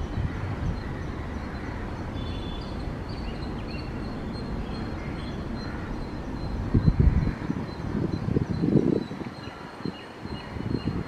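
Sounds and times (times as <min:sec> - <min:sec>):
wind buffeting microphone: 0:00.0 - 0:02.2, 0:02.8 - 0:11.0
small birds chirping: 0:00.0 - 0:11.0.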